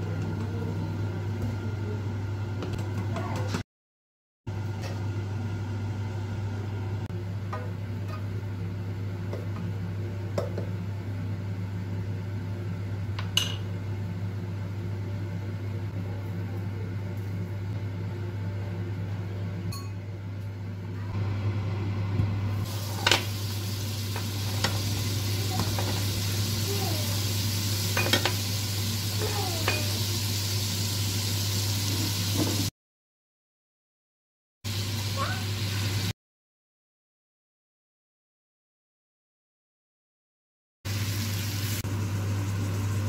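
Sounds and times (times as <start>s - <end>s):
butter sizzling in frying pan: 22.6s - 32.7s, 34.7s - 36.1s, 40.9s - 43.0s.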